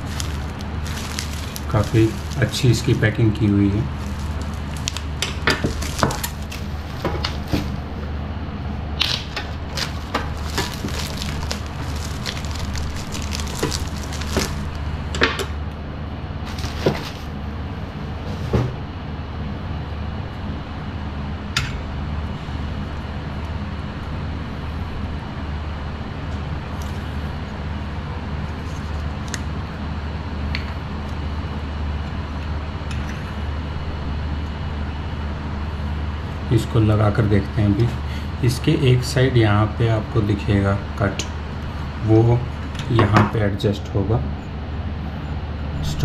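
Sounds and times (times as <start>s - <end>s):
packaging being unpacked by hand: 0.0s - 7.8s, 9.0s - 14.8s, 16.4s - 17.4s
steady low hum: 0.0s - 46.0s.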